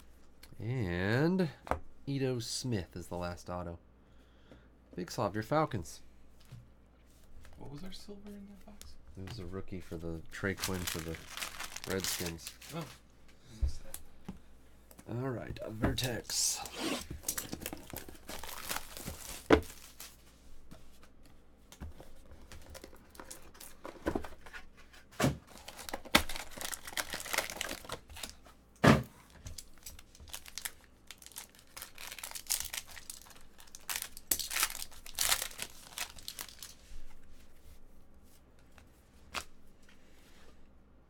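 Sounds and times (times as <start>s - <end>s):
wrappers crinkling and tearing: 10.3s - 12.9s, 16.6s - 20.2s, 25.5s - 28.4s, 29.5s - 36.8s.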